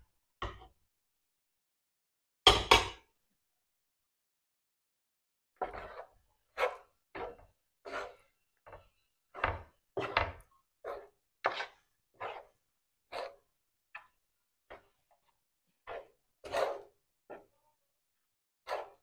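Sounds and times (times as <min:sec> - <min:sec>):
wooden spoon scraping metal pan: 0:05.6 - 0:17.7, 0:18.6 - 0:19.0.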